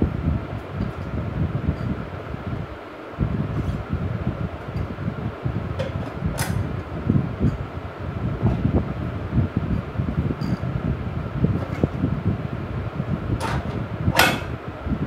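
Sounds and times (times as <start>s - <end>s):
fan whirring with low rumble: 0.0s - 15.0s.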